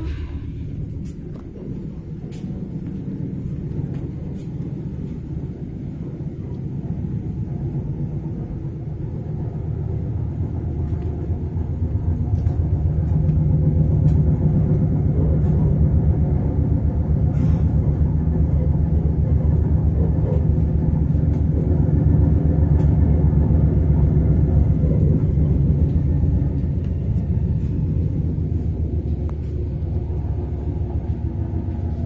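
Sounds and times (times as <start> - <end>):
electric train low rumble: 0.0 - 32.0.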